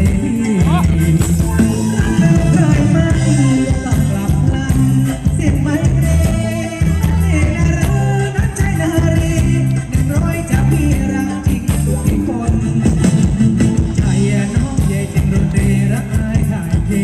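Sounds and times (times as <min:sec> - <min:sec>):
live band playing dance music: 0:00.0 - 0:17.0
person singing: 0:00.0 - 0:17.0
strong bass line: 0:00.0 - 0:17.0.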